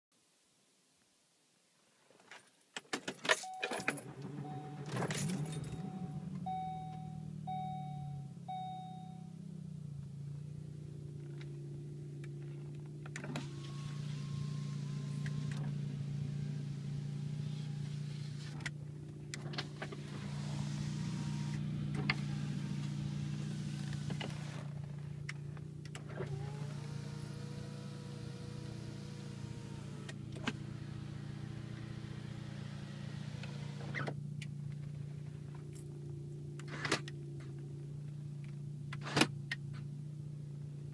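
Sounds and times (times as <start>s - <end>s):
car engine starting and idling: 3.3s - 40.9s
warning chime beeps: 3.4s - 9.4s.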